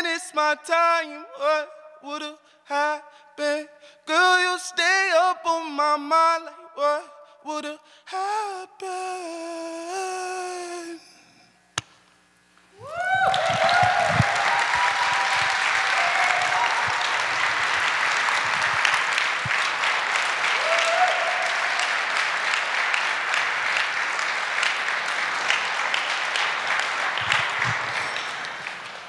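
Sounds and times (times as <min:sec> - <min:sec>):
audience applauding: 0:12.8 - 0:29.0.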